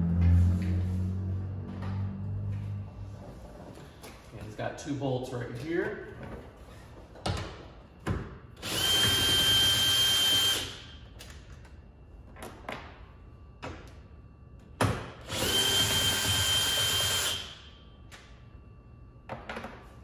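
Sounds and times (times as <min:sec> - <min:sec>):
cordless drill whining: 0:08.6 - 0:10.7, 0:15.3 - 0:17.4.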